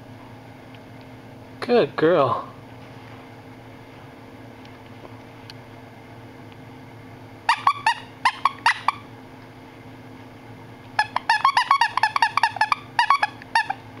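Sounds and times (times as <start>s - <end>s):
toy squeaker squeaking: 7.5s - 9.1s, 11.0s - 13.8s.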